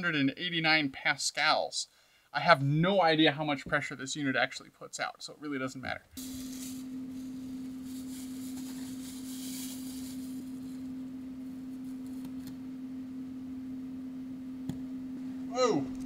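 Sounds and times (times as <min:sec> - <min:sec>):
blower fan humming: 0:06.1 - 0:16.0.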